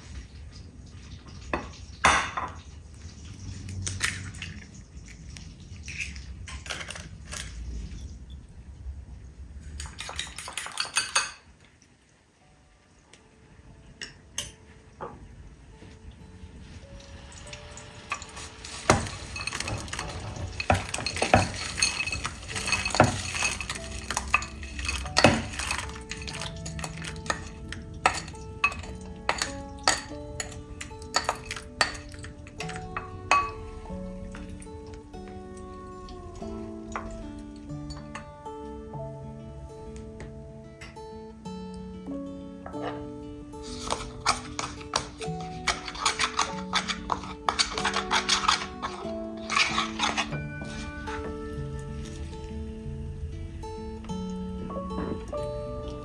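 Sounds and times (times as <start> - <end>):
soft background music: 0.0 - 56.0
kitchen utensils and dishes clinking: 1.1 - 8.1, 9.6 - 11.6, 17.0 - 35.0, 42.7 - 52.6.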